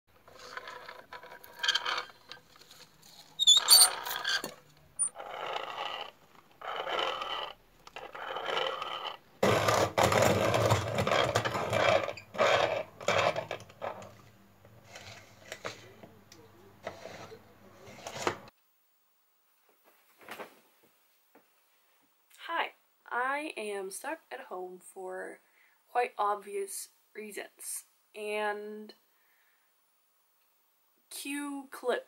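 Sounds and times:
coffee mill grinding scraping: 0.2 - 15.9, 16.8 - 18.5
high squeaks: 3.4 - 5.2.

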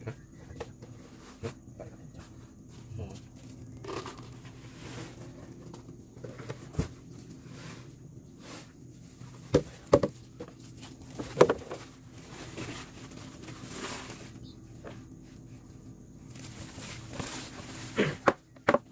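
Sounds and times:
plastic containers knocking: 9.5 - 11.9, 18.2 - 18.9.

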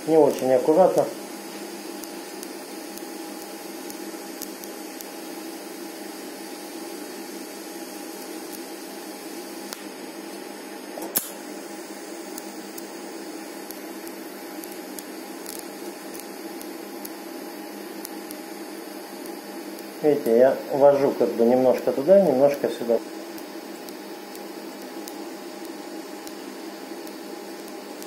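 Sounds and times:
welding arc hissing: 0.0 - 28.0
sharp click: 11.0 - 11.4.

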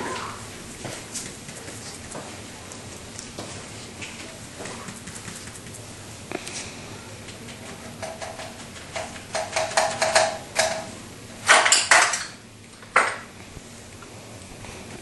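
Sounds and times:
scraping rustles: 0.0 - 7.8.

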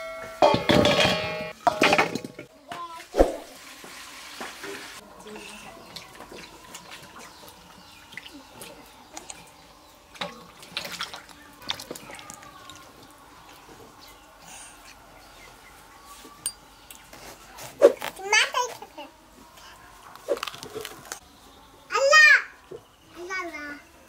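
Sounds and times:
water sloshing in a bowl: 2.9 - 17.0
water splashing: 3.0 - 13.7.

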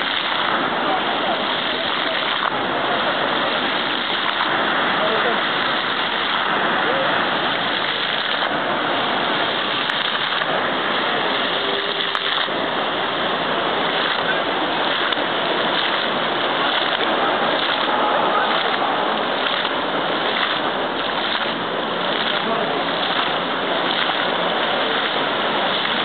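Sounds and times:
fountain water splashing on paving: 0.0 - 26.0.

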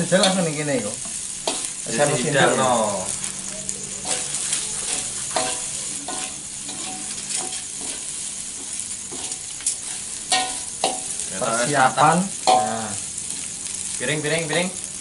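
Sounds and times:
rice sizzling in a wok: 0.0 - 15.0
metal spatula scraping a wok: 1.1 - 1.8, 3.9 - 11.2.

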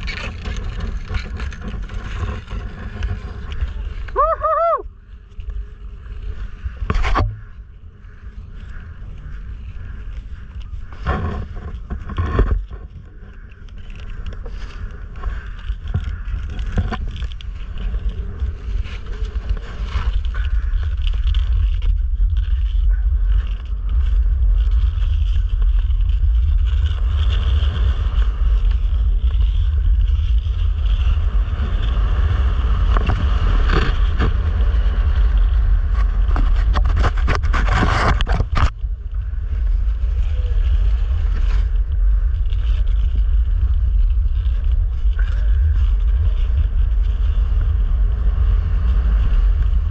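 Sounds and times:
skate blades scraping ice: 0.0 - 7.4, 9.4 - 38.8
wind rumble on microphone: 0.0 - 49.9.

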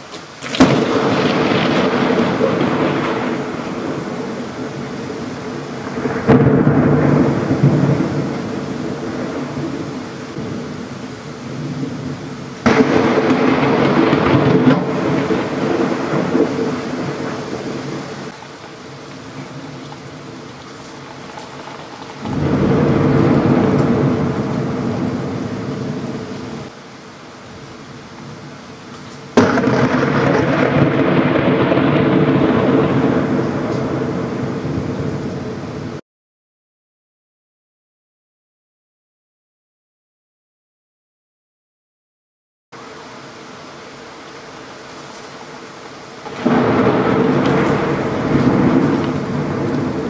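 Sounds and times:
heavy rain: 0.0 - 36.0, 42.8 - 50.0
loud thunder crack: 0.4 - 20.4, 22.1 - 26.7, 29.3 - 36.0, 46.2 - 50.0
thunder rumbling: 0.4 - 36.0, 46.1 - 50.0.

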